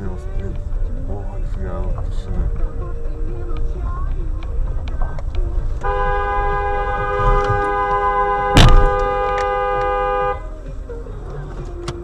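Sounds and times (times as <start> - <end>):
car horn two-tone note: 5.8 - 10.5
collision bang: 8.5 - 9.2.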